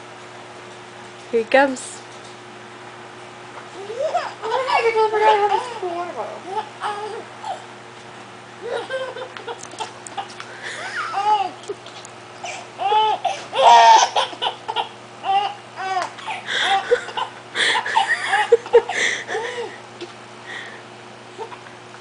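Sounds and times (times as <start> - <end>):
baby laughing: 3.8 - 5.8, 8.6 - 19.7, 21.4 - 21.7.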